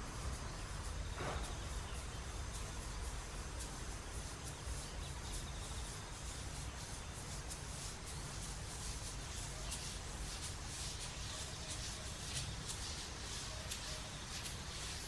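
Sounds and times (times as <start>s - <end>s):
faint high chirps: 9.0s - 15.0s.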